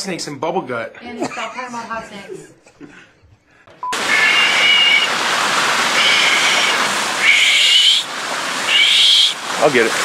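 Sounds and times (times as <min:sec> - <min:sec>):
short high-pitched calls: 0:03.9 - 0:05.2, 0:05.9 - 0:08.1, 0:08.7 - 0:09.4
fountain water splashing: 0:03.9 - 0:10.0.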